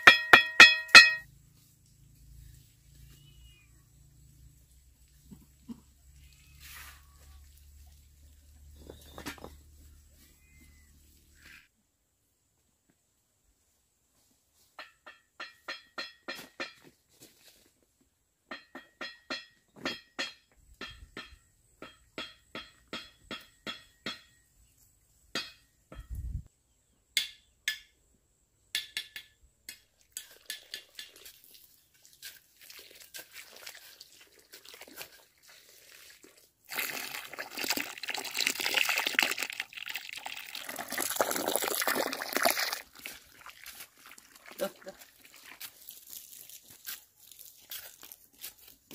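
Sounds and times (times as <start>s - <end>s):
trowel clinking on bricks: 0.0s - 1.3s, 28.8s - 31.4s.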